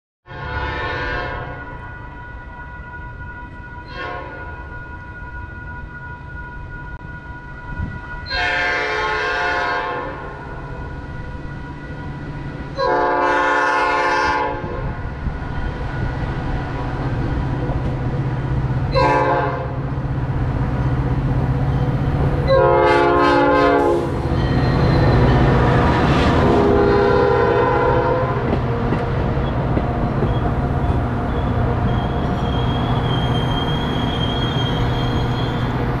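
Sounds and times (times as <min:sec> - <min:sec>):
locomotive air horn blasts: 0:00.3 - 0:02.0, 0:03.8 - 0:04.7, 0:08.2 - 0:10.4, 0:12.8 - 0:15.0, 0:18.9 - 0:19.8, 0:22.4 - 0:28.5
train engine hum: 0:00.3 - 0:36.0
train wheels rumbling: 0:06.9 - 0:36.0
grade crossing signal: 0:14.6 - 0:36.0.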